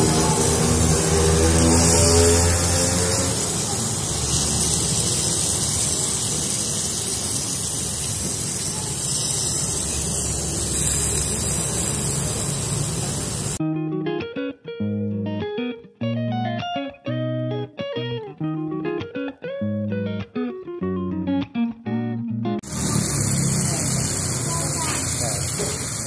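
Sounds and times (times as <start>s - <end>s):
steak sizzling on hot plate: 0.0s - 13.6s, 22.6s - 26.0s.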